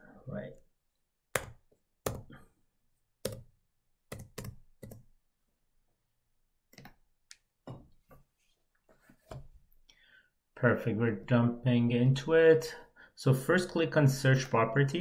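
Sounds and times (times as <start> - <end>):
keyboard keys tapping: 4.1 - 5.1.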